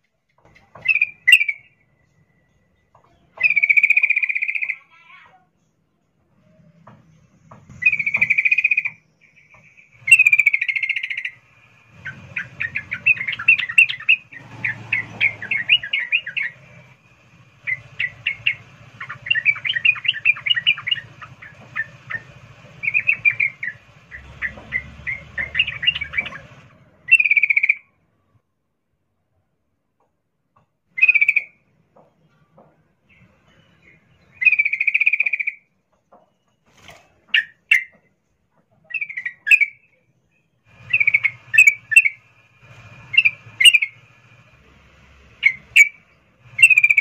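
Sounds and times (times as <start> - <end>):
bird rapid chattering: 0.5 - 1.8, 3.1 - 5.0, 7.7 - 27.8, 34.4 - 35.6, 38.8 - 39.9, 40.7 - 42.4, 43.0 - 44.0, 45.4 - 47.0
bird buzzy trills: 7.1 - 27.9, 33.1 - 35.7, 40.6 - 47.0.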